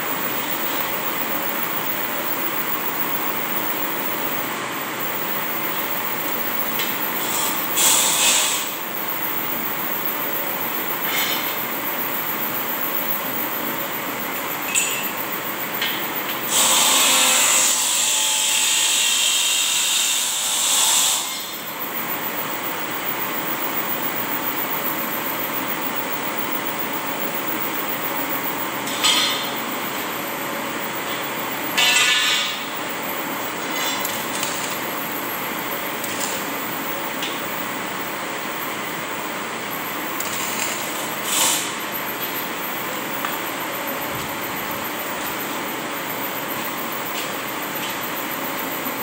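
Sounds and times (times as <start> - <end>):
angle grinder cutting metal: 16.5 - 21.5, 31.1 - 32.8
fan whirring: 21.5 - 49.0.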